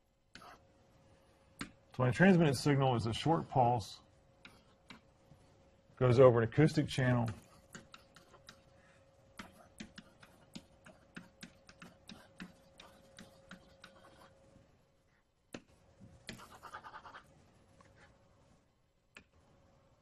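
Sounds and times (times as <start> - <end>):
faint steady hum: 0.0 - 20.0
stylus clicking on whiteboard: 7.2 - 8.7, 9.4 - 14.3.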